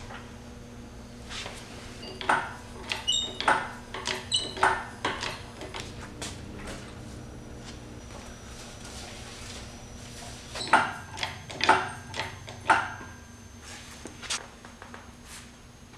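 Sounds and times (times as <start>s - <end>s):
engine hoist clunks and clicks: 10.6s - 13.1s.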